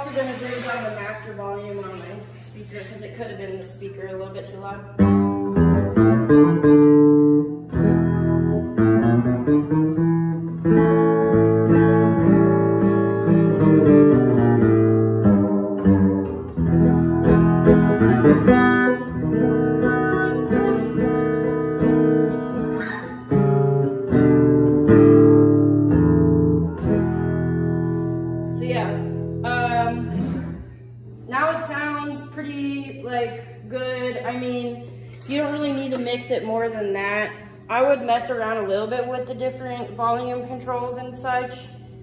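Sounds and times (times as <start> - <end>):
guitar strumming chords: 4.9 - 32.3.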